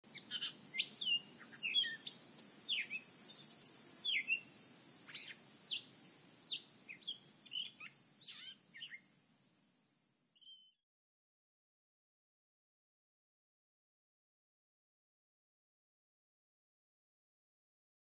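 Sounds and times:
steady high-pitched whine: 0:00.1 - 0:10.2
faint low hum: 0:00.1 - 0:10.7
birds chirping and whistling: 0:00.2 - 0:04.4, 0:05.1 - 0:09.0.

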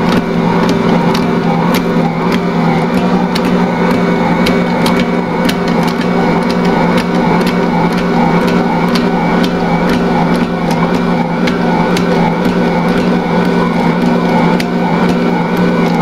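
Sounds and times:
stand mixer motor humming: 0:00.0 - 0:16.0.

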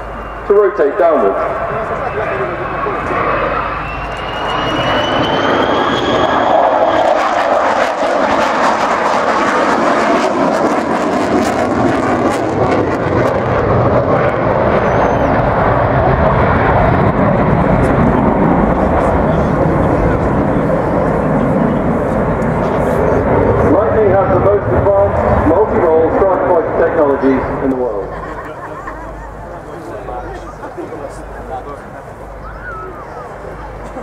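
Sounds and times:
high whine rising in pitch: 0:00.0 - 0:08.8
jet engine roar: 0:00.0 - 0:34.0.

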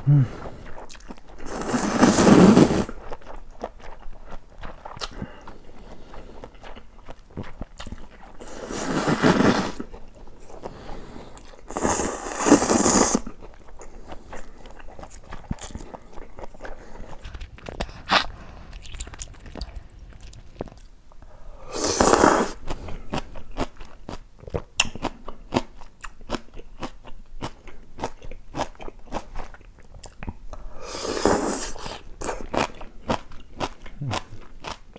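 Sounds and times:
crunchy chewing: 0:00.6 - 0:21.0
noodle slurping: 0:01.4 - 0:03.1, 0:08.4 - 0:09.9, 0:11.6 - 0:13.4, 0:21.7 - 0:22.7, 0:30.8 - 0:32.1.

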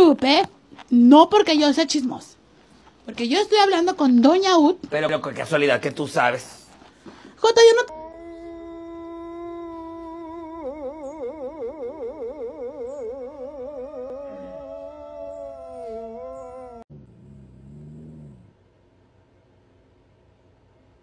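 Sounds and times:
dog howling: 0:07.9 - 0:18.3.

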